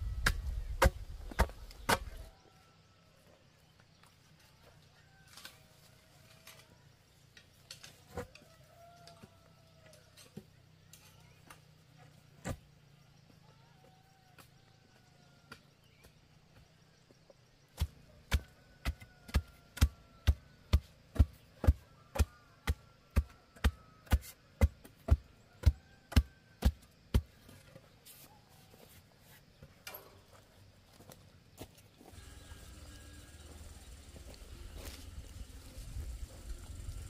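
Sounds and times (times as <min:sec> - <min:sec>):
hand tool striking wood: 0:17.8 - 0:27.3.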